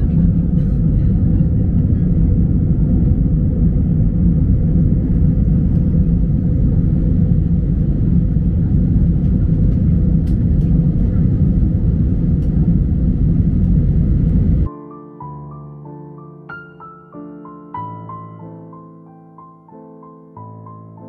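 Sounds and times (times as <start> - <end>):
airliner taking off rumble: 0.0 - 14.7.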